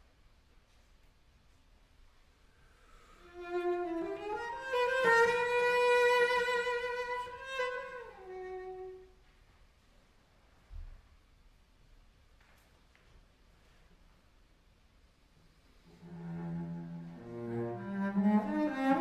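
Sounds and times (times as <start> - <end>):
bowed cello notes: 3.2 - 9.1, 15.8 - 19.0.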